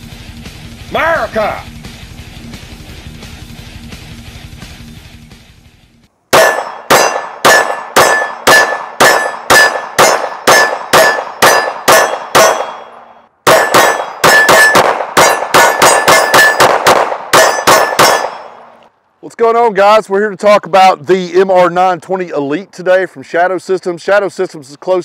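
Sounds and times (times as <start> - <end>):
intro music: 0.0 - 6.6
pistol shots: 6.3 - 18.8
steel target ringing clang: 6.3 - 18.8.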